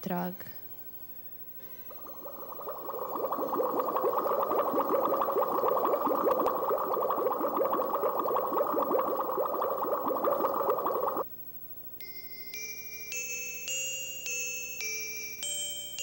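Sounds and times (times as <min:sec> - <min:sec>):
air bubbling through water: 0:01.9 - 0:11.2.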